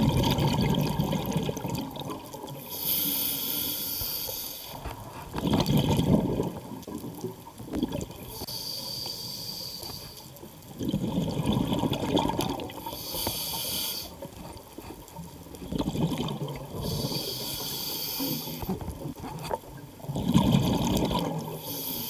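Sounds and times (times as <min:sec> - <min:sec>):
exhaled air bubbling: 0:00.0 - 0:03.8, 0:04.7 - 0:08.5, 0:10.5 - 0:22.0
regulator inhalation hiss: 0:02.6 - 0:04.8, 0:08.3 - 0:10.3, 0:12.8 - 0:14.2, 0:16.8 - 0:18.8, 0:21.6 - 0:22.0.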